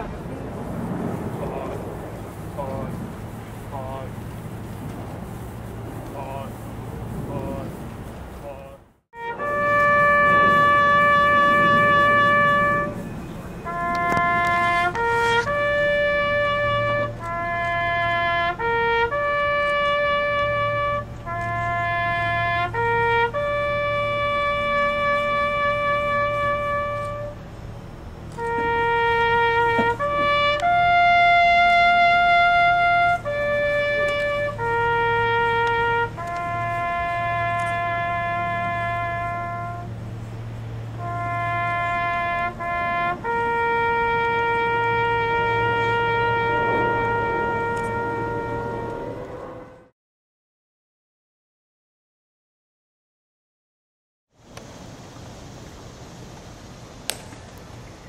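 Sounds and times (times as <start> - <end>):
solo trumpet melody: 0.0 - 50.0.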